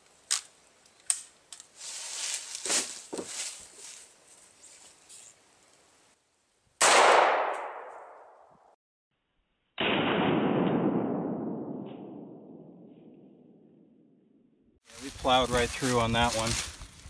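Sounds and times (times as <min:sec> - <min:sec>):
rifle shot: 0:06.8 - 0:08.4, 0:09.8 - 0:13.6.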